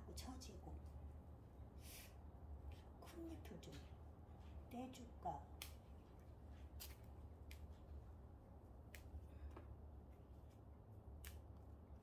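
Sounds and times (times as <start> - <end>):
steady low hum: 0.0 - 12.0
leaves snapping off stem: 6.8 - 7.7, 11.1 - 11.6.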